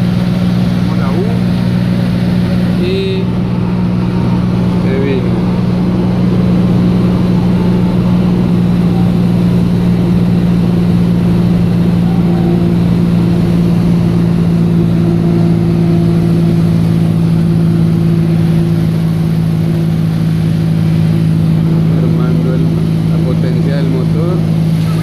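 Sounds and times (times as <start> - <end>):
light aircraft engine and propeller: 0.0 - 25.0.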